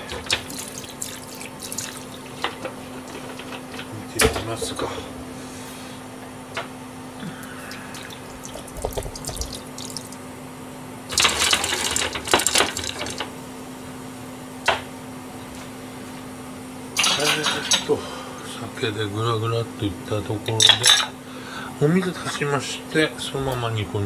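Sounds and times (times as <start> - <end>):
steady low hum: 0.0 - 11.2
liquid splashing into pan: 7.7 - 10.2.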